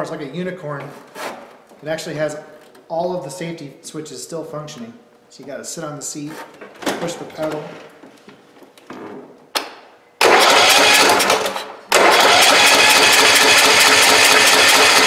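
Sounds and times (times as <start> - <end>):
engine cranking: 10.2 - 15.0
lawn tractor engine running: 10.2 - 15.0.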